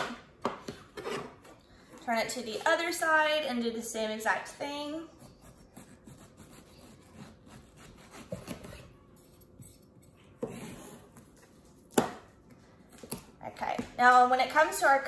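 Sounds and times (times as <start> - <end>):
knife slicing through fruit: 5.2 - 8.9.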